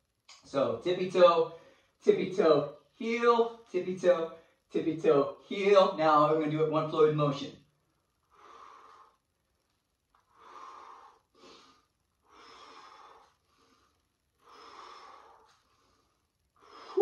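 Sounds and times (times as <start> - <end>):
man breathing: 1.5 - 2.0, 7.9 - 9.6, 10.2 - 17.0.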